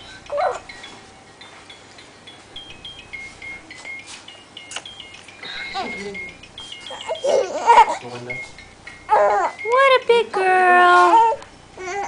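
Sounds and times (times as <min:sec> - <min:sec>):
electronic toy beeping tune: 0:02.6 - 0:09.9.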